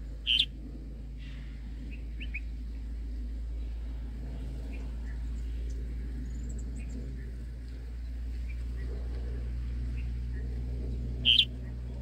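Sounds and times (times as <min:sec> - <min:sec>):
steady low hum: 0:00.0 - 0:12.0
faint bird chirps: 0:00.2 - 0:00.6, 0:01.2 - 0:02.9, 0:09.9 - 0:12.0
bird sharp call: 0:00.3 - 0:00.5, 0:11.2 - 0:11.5.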